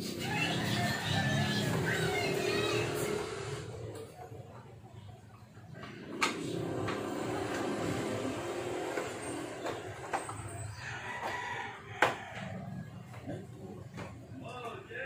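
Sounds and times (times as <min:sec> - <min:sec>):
rooster crowing: 0:10.6 - 0:13.1.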